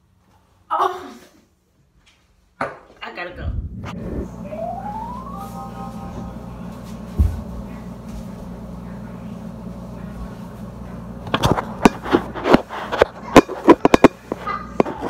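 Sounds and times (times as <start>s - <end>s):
steady low hum: 3.2s - 15.0s.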